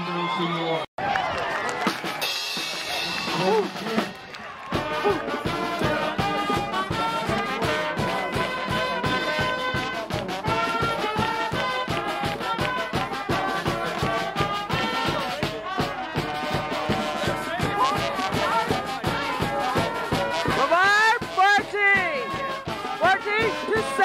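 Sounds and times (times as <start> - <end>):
marching band playing brass tune: 1.5 - 24.0
steady drumbeat: 1.7 - 24.0.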